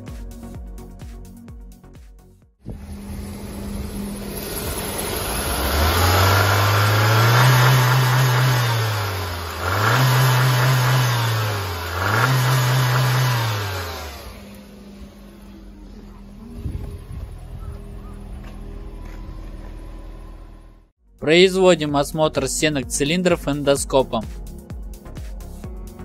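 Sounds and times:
car engine revving: 0:02.7 - 0:20.9.

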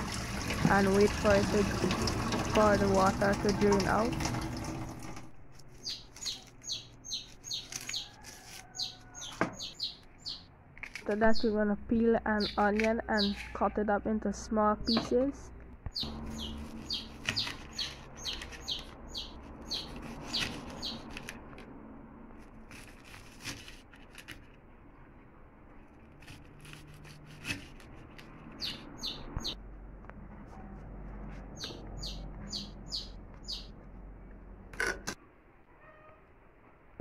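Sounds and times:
small bird chirping: 0:05.8 - 0:10.5, 0:12.3 - 0:13.6, 0:15.9 - 0:21.2, 0:28.6 - 0:29.6, 0:31.6 - 0:33.8.

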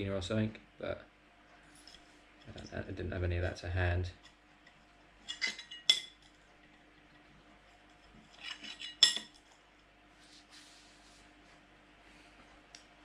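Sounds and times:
metal washers clinking on plate: 0:08.3 - 0:09.4.

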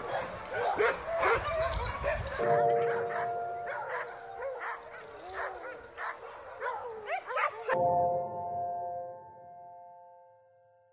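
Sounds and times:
sled dogs yipping and barking: 0:00.0 - 0:07.8.

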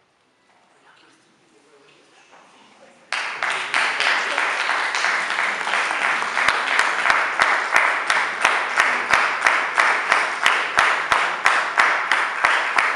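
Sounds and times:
audience applause: 0:03.1 - 0:12.9
rhythmic clapping in unison: 0:03.1 - 0:12.9.

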